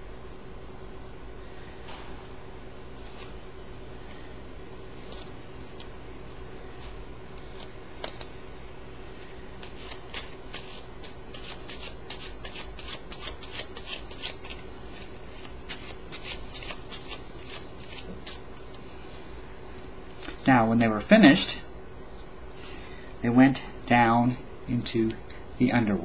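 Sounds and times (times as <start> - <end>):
faint steady hum: 0.0 - 26.0
playing cards shuffling: 3.0 - 3.4, 5.0 - 5.9, 6.8 - 8.4, 9.6 - 18.7.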